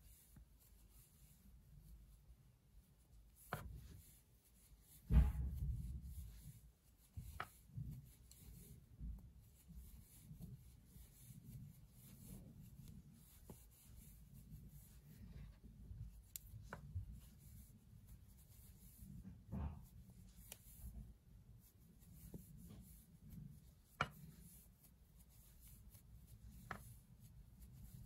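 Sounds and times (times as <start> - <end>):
yarn rustling: 0.0 - 28.0
soft knocks: 4.9 - 6.3.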